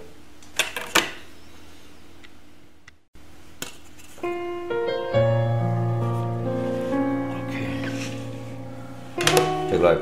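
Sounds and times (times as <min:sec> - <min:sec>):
background piano music: 0:04.2 - 0:10.0.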